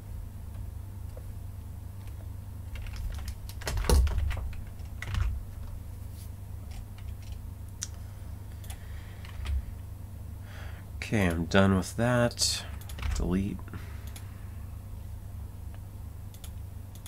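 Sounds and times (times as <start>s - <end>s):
steady low hum: 0.0s - 17.0s
computer keyboard keystrokes: 2.0s - 5.4s, 6.7s - 7.4s, 12.8s - 13.3s.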